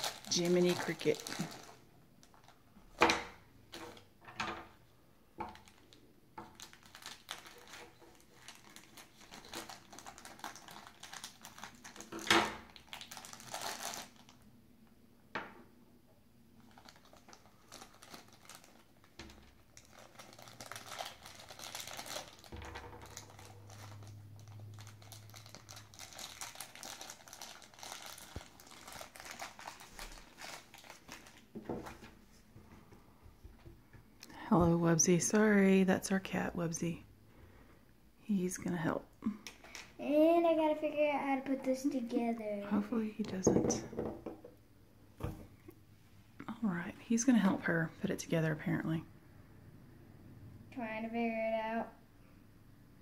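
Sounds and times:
plastic bag crinkling: 0:00.0 - 0:02.7, 0:05.5 - 0:14.4, 0:16.6 - 0:32.1, 0:39.5 - 0:40.0.

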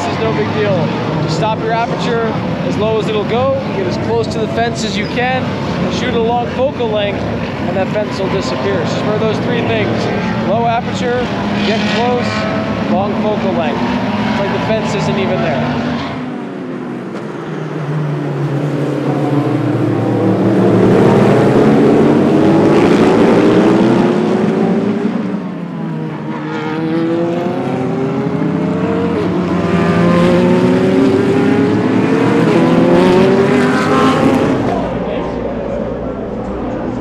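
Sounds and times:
race cars accelerating past: 0:00.0 - 0:37.0.

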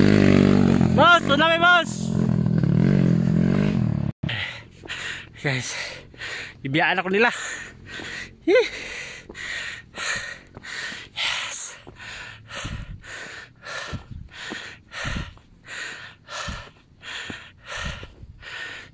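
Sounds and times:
person panting: 0:04.2 - 0:18.9
low thumps: 0:13.8 - 0:15.4.

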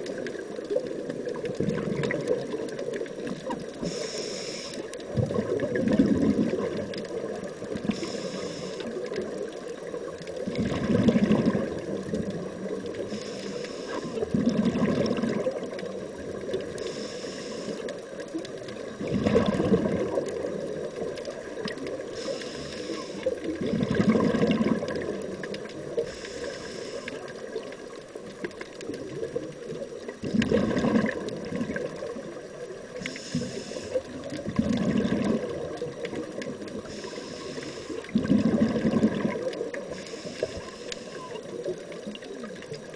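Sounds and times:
exhaust bubbles burbling: 0:00.0 - 0:03.6, 0:05.1 - 0:07.9, 0:09.8 - 0:13.0, 0:14.2 - 0:16.7, 0:18.8 - 0:22.1, 0:23.4 - 0:26.0, 0:29.0 - 0:32.5, 0:34.1 - 0:36.8, 0:38.0 - 0:40.0
regulator hiss on inhale: 0:03.7 - 0:05.1, 0:07.7 - 0:09.9, 0:12.6 - 0:14.4, 0:16.4 - 0:18.3, 0:21.9 - 0:23.6, 0:25.8 - 0:27.6, 0:32.6 - 0:34.3, 0:36.6 - 0:38.2, 0:39.8 - 0:41.9.

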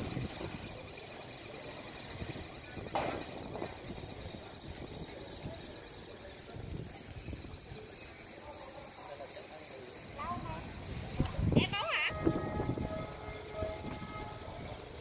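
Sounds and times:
distant road traffic: 0:07.6 - 0:15.0.

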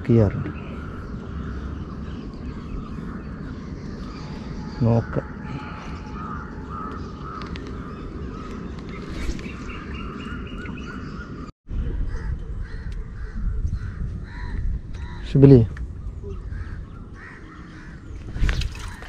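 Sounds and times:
crows cawing: 0:00.5 - 0:08.7, 0:12.1 - 0:15.4, 0:16.4 - 0:18.2.

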